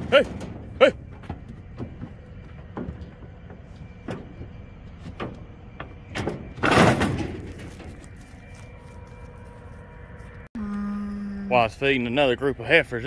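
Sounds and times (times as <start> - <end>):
trailer clattering and rattling: 0.0 - 8.3
hooves on steel floor: 0.0 - 8.5.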